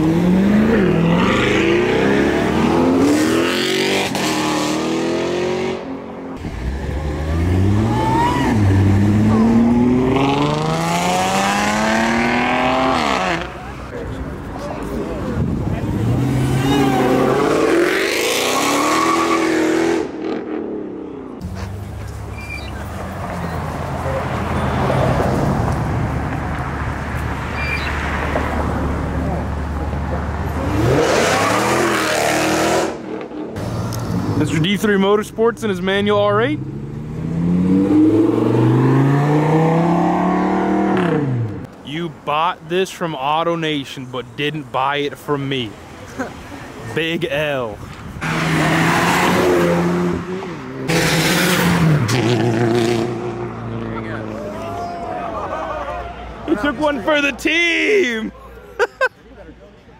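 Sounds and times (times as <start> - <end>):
car engine revving and shifting gears: 0.0 - 6.0, 6.6 - 13.6, 16.0 - 20.9, 30.5 - 34.4, 36.6 - 41.7, 48.2 - 54.3.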